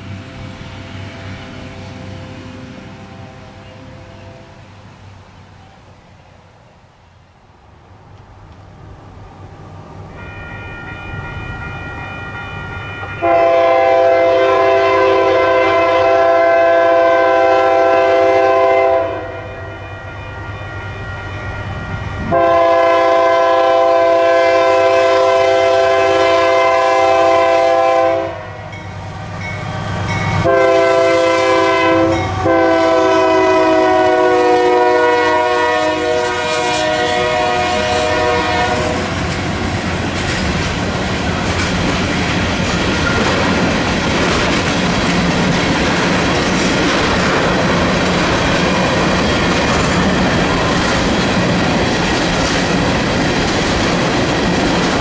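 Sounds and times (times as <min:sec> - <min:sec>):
freight train rumbling: 0:00.0 - 0:55.0
locomotive air horn: 0:13.2 - 0:19.6, 0:22.3 - 0:28.7, 0:30.4 - 0:39.2.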